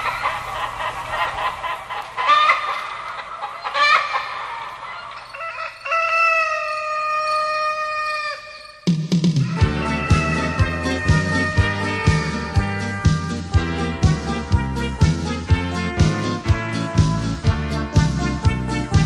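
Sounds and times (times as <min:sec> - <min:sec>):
chickens clucking: 0:00.0 - 0:08.8
rooster crowing: 0:03.6 - 0:08.8, 0:09.4 - 0:13.2
dance music with drum beat: 0:08.9 - 0:19.0.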